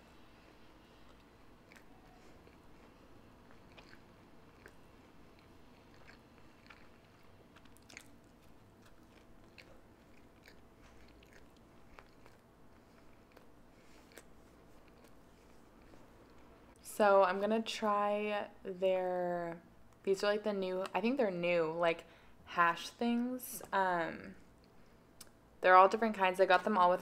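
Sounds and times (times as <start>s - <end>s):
chewing food: 0.4s - 16.8s.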